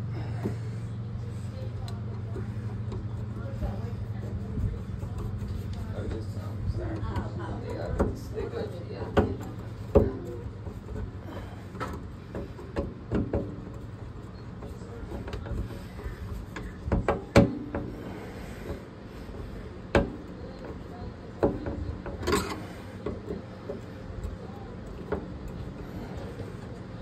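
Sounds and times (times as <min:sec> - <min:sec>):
steady low hum: 0:00.0 - 0:27.0
knocks and clunks on plumbing: 0:06.8 - 0:26.6.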